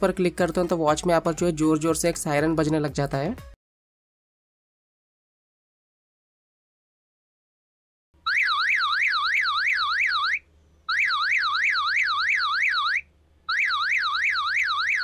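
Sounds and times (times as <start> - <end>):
warbling alarm siren: 8.2 - 15.0.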